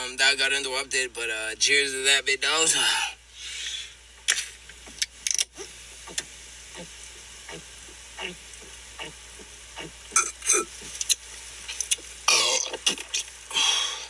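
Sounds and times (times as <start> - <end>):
liquid fizzing and gurgling: 7.0 - 14.0
person gulping drink: 7.5 - 13.8.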